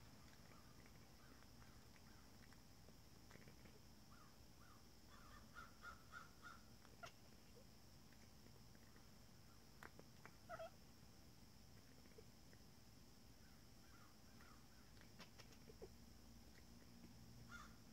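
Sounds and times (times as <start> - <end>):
cat chattering chirps: 10.4 - 10.8.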